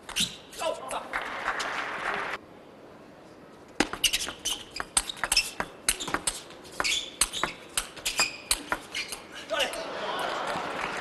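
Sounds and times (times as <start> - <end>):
table tennis ball hitting bats and table: 3.8 - 8.8.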